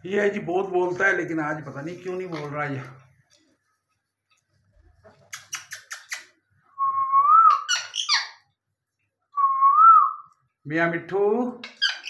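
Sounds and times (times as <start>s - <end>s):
whistled bird notes: 6.7s - 8.4s
parakeet chirps: 7.5s - 8.5s, 11.6s - 12.0s
parakeet squawk: 7.5s - 8.5s, 11.6s - 12.0s.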